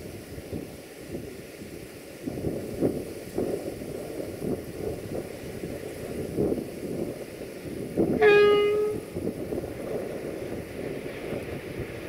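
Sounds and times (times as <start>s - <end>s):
locomotive low rumble: 7.7s - 12.0s
locomotive horn blast: 8.2s - 9.2s.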